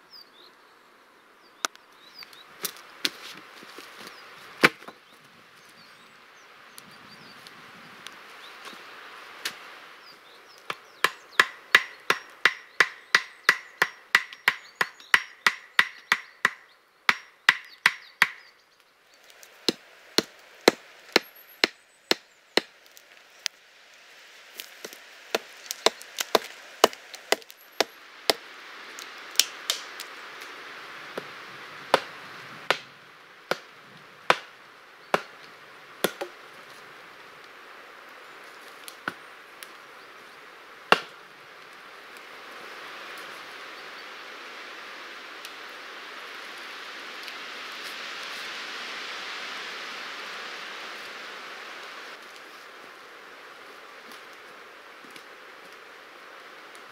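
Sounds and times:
hammering on wood: 0:11.0 - 0:18.4.

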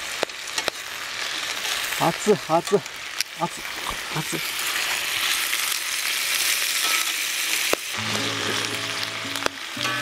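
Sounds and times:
meat sizzling in fat: 0:00.0 - 0:10.0
background music: 0:08.0 - 0:10.0.

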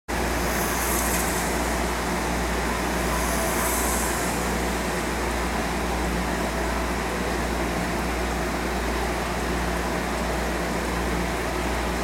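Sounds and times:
filtration hiss: 0:00.1 - 0:05.9.

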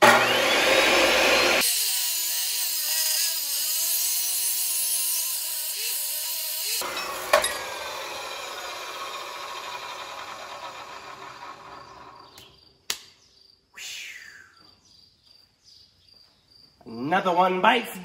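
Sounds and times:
chop saw grinding through steel: 0:00.0 - 0:12.3
sharp click: 0:12.3 - 0:13.2.

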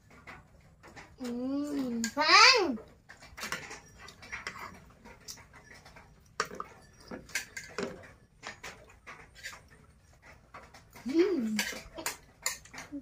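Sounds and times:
spoons clinking on plates: 0:03.1 - 0:10.3, 0:11.4 - 0:12.9.

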